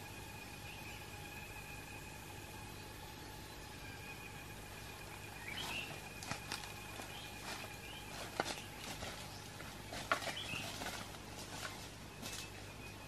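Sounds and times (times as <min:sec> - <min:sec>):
thin high tone: 0:00.0 - 0:08.4
bird chirping: 0:00.3 - 0:11.1
footsteps through leaf litter: 0:05.4 - 0:12.8
twigs snapping: 0:05.6 - 0:12.6.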